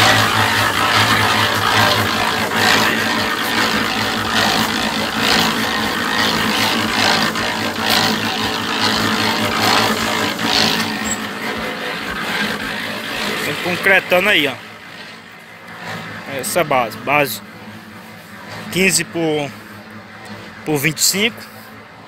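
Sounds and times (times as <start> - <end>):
wet concrete churning: 0.0 - 16.7
concrete mixer drum humming: 0.0 - 22.0.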